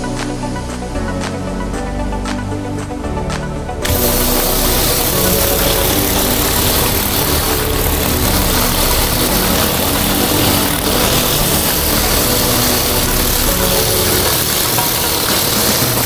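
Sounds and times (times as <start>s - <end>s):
pressure washer engine running: 3.8s - 16.0s
water spraying on concrete: 3.8s - 16.0s.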